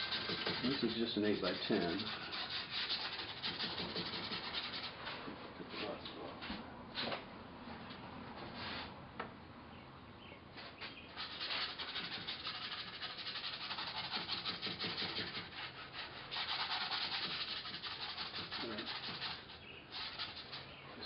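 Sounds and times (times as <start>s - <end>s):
paintbrush scrubbing on canvas: 0.0s - 5.1s, 11.2s - 20.8s.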